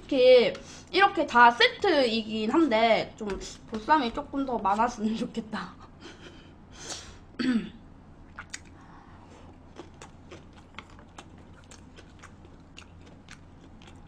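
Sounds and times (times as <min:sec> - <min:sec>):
person chewing food: 0:08.3 - 0:14.0.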